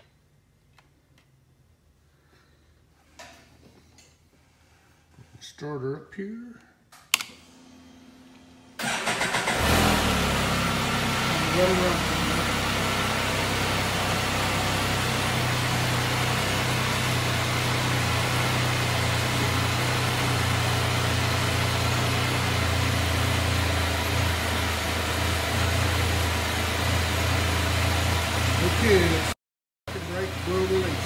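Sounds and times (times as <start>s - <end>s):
engine idling: 8.8s - 29.3s, 29.9s - 31.0s.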